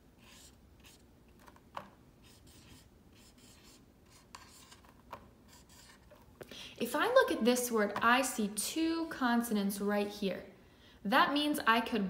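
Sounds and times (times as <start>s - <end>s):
marker writing on whiteboard: 0.2s - 1.5s, 2.2s - 6.2s.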